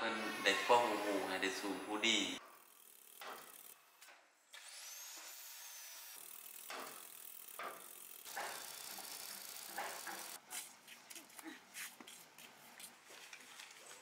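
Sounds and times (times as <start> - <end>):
angle grinder cutting steel: 0.0 - 3.9, 4.5 - 10.4.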